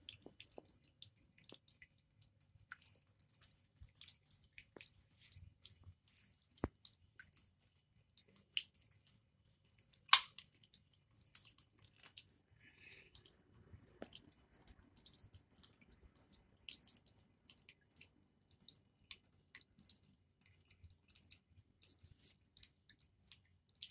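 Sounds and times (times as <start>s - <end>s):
water dripping: 0.0s - 23.9s
sharp click: 10.1s - 10.4s.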